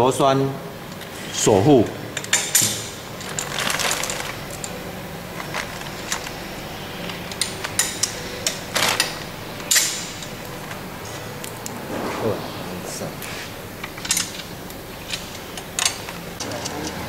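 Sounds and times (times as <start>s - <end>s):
wrench and bolts clinking: 2.2s - 4.8s, 7.1s - 10.4s.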